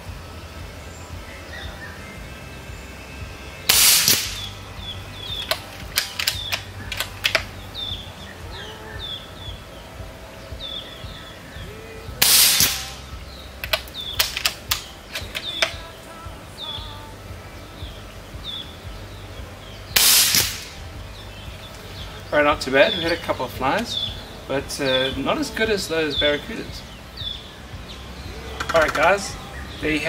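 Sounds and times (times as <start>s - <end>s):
suppressed air rifle shots: 3.7s - 4.6s, 5.2s - 7.5s, 12.2s - 13.0s, 13.6s - 15.8s, 20.0s - 20.9s
rifle bolt clicking: 5.4s - 7.5s, 13.6s - 15.8s.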